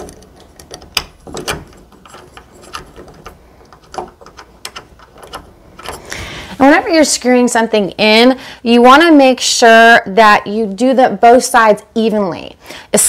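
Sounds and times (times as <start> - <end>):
metal hardware clicks and taps: 0.0 - 6.1.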